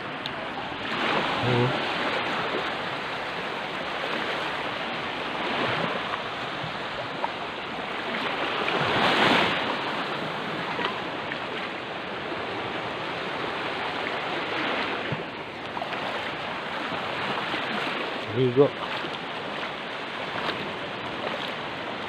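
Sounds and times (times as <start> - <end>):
sea waves washing on shore: 0.0 - 22.0.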